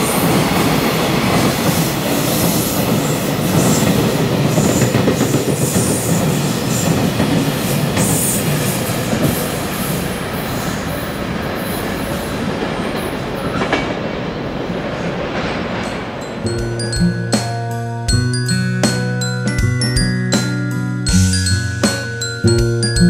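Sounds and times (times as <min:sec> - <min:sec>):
train wheel squeal: 0:00.0 - 0:08.5
train wheels clattering: 0:00.0 - 0:10.0.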